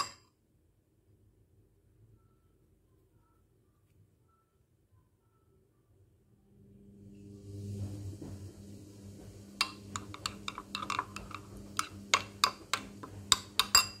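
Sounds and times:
spoon clinking against ceramic bowl: 0:00.0 - 0:00.2, 0:09.6 - 0:14.0
low steady hum: 0:00.0 - 0:14.0.

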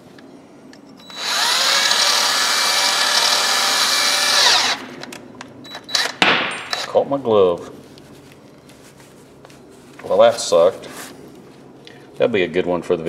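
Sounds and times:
power drill motor spinning: 0:01.0 - 0:07.0.

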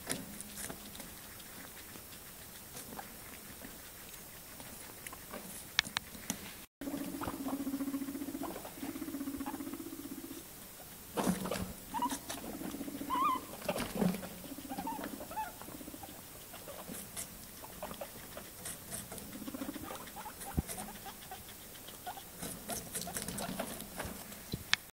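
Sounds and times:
guinea pig squeaks: 0:00.0 - 0:06.1, 0:06.8 - 0:24.3
guinea pigs chewing: 0:00.0 - 0:24.9.

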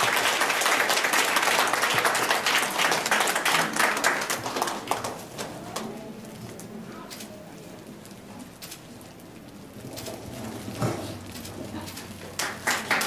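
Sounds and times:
audience applauding: 0:00.0 - 0:05.9, 0:12.3 - 0:13.0.

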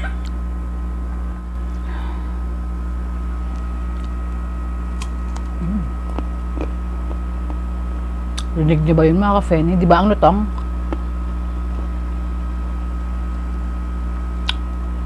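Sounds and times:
person humming: 0:00.0 - 0:00.3, 0:05.6 - 0:06.7
low electrical hum: 0:00.0 - 0:15.0
crunching and chewing: 0:03.5 - 0:07.7.

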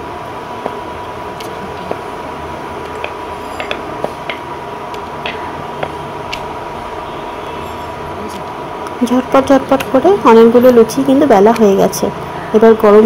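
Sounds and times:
rolling pin rolling dough: 0:00.0 - 0:06.5
faint hum: 0:00.0 - 0:13.0.

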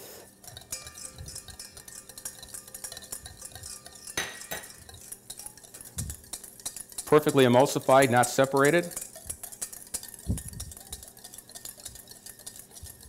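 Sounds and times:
utensil clicking and scraping bowl: 0:00.2 - 0:13.0
utensil knocking bowl: 0:00.5 - 0:13.0.

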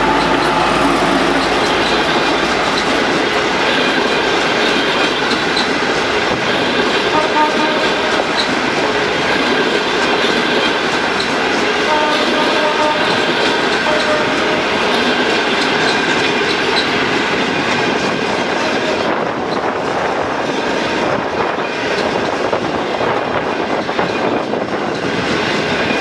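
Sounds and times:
loud rushing noise: 0:00.0 - 0:04.4
train wheels clickety-clack: 0:00.0 - 0:26.0.

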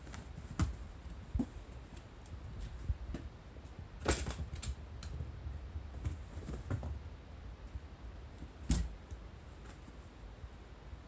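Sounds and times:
kittens scampering on mats: 0:00.0 - 0:03.3.

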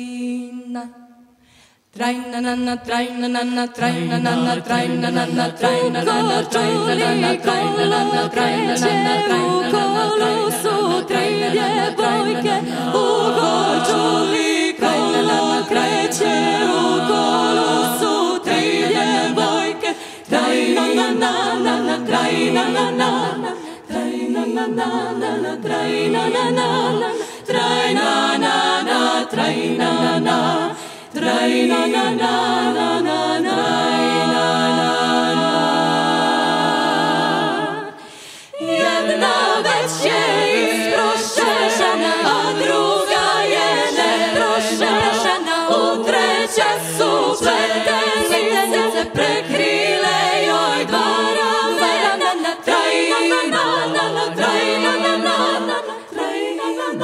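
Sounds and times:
women singing in harmony: 0:00.0 - 0:57.0
singers breathing: 0:01.3 - 0:01.9, 0:19.9 - 0:20.3, 0:23.6 - 0:23.9, 0:27.1 - 0:27.5, 0:30.7 - 0:31.2, 0:37.9 - 0:38.6.

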